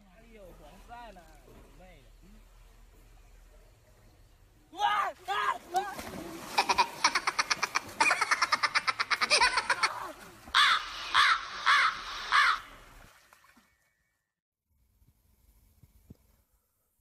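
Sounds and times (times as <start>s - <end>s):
rapid pulsed laughter: 6.6s - 10.2s
harsh caws: 10.5s - 12.8s.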